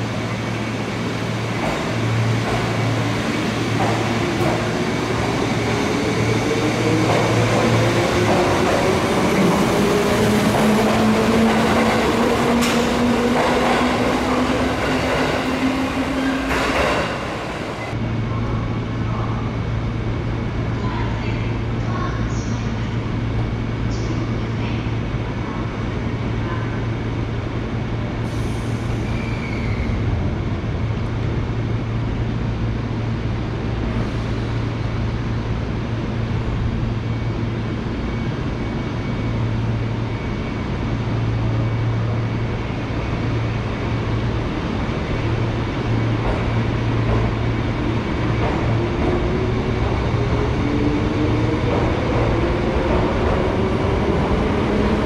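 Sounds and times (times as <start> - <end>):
electric train humming: 0.0 - 18.5.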